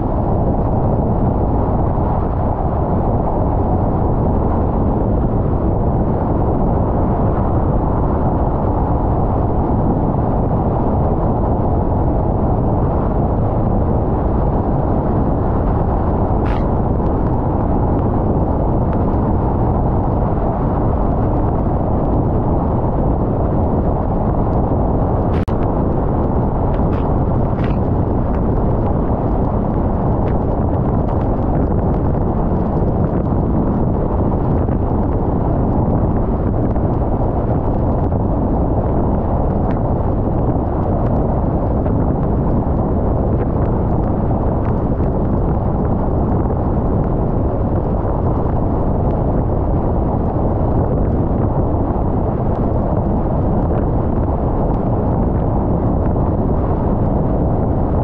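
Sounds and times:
car road noise: 15.3s - 18.0s, 23.9s - 31.5s.

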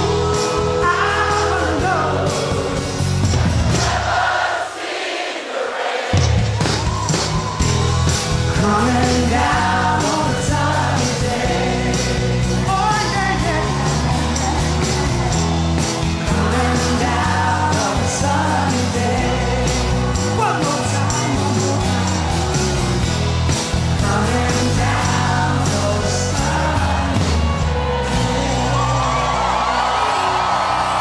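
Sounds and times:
man singing: 0.0s - 3.2s, 8.5s - 13.8s, 16.2s - 22.0s, 24.0s - 27.5s
live rock band playing: 0.0s - 4.0s, 6.2s - 31.0s.

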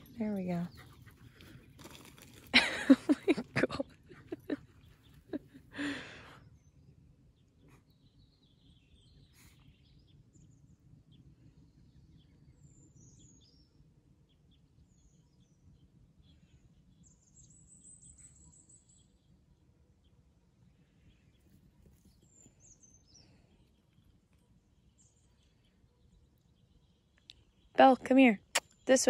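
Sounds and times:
faint bird chirps: 6.3s - 29.0s.

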